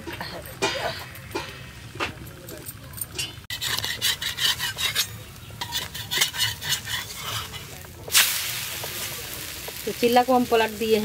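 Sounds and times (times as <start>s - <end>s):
metal spatula scraping pan: 3.2s - 7.9s
loud sizzling: 4.6s - 11.0s.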